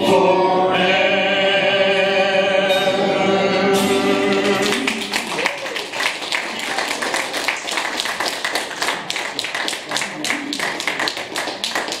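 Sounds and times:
people clapping: 4.3s - 12.0s.

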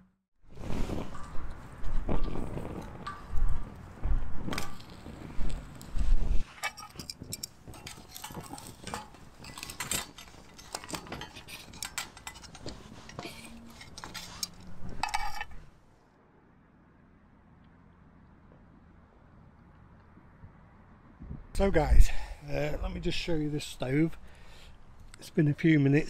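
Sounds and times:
metal tongs clinking on stove: 6.6s - 15.6s.

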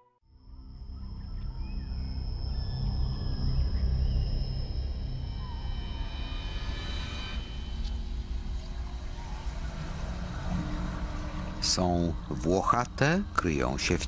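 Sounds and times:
high-pitched whine: 0.3s - 14.0s
low rumble: 0.4s - 14.0s.

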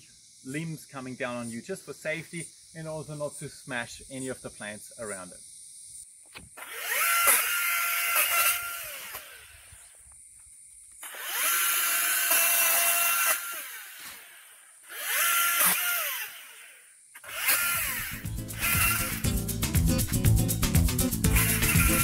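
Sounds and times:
electric pole saw whining: 6.6s - 9.9s, 11.0s - 19.4s, 21.2s - 22.0s.

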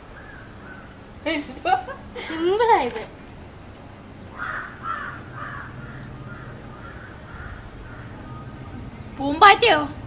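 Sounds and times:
crow cawing: 0.2s - 1.0s, 4.3s - 8.5s.

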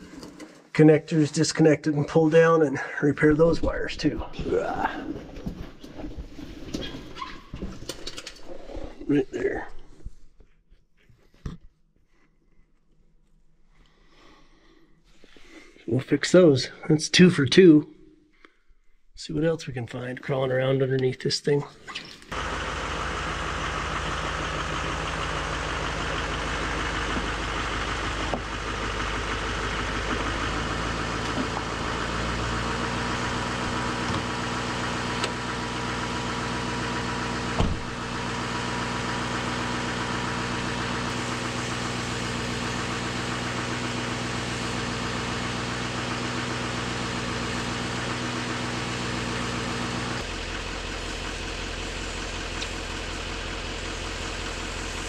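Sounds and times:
pickup truck engine idling: 22.3s - 55.0s
truck door shutting: 37.5s - 38.2s.

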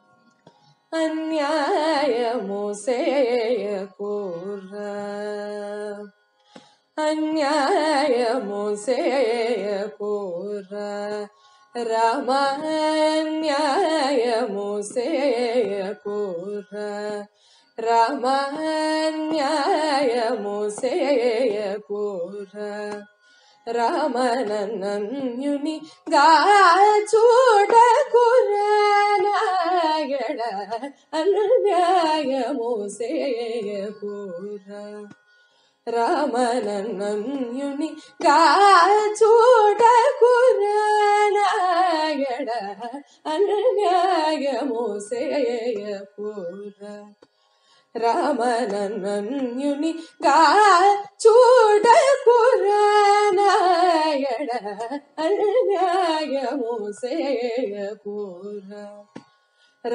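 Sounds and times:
woman singing: 0.9s - 6.2s, 7.0s - 23.1s, 23.7s - 35.2s, 35.9s - 47.3s, 48.0s - 59.2s.

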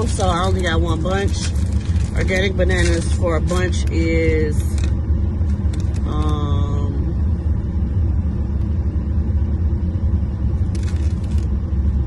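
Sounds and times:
paper receipt crackle: 0.0s - 6.4s, 10.7s - 11.5s
car cabin rumble: 0.0s - 12.0s.

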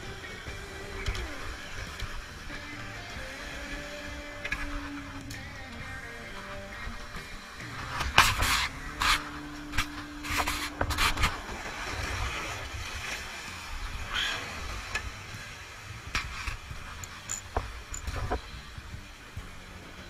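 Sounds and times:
surf washing against rocks: 0.0s - 18.5s
wind rumbling on microphone: 0.0s - 20.0s
fishing gear knocks and scrapes: 16.2s - 18.5s.

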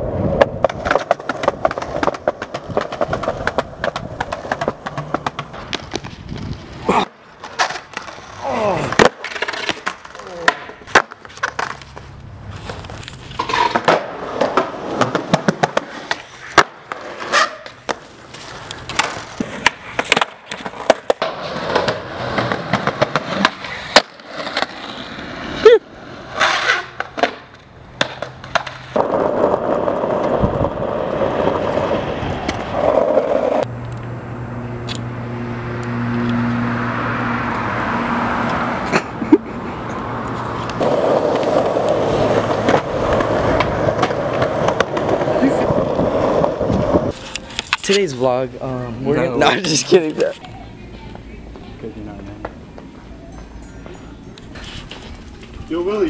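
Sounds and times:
skateboard wheels rolling: 0.0s - 34.2s, 34.8s - 53.2s
skateboard clacks: 0.3s - 12.8s, 13.4s - 25.2s, 26.4s - 33.7s, 40.7s - 48.0s.

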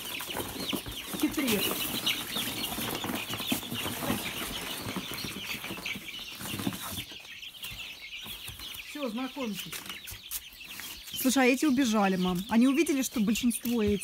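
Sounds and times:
wings flapping: 0.0s - 7.2s
chicks cheeping: 0.0s - 14.0s.

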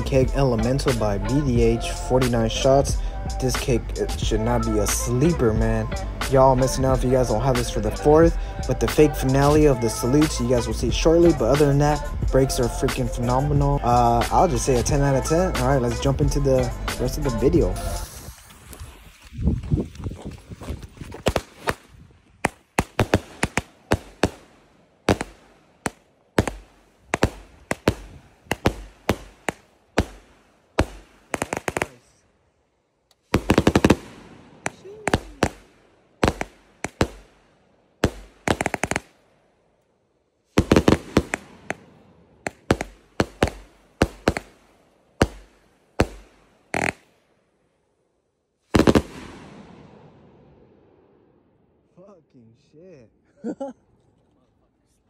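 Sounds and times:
fireworks bangs: 14.3s - 19.3s, 21.1s - 32.2s, 33.2s - 39.2s, 40.6s - 47.1s, 48.7s - 51.0s.

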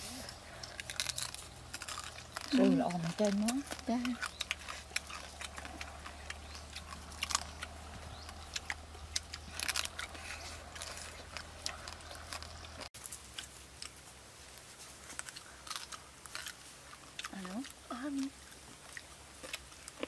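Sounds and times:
people chewing crunchy meat: 0.0s - 20.0s.

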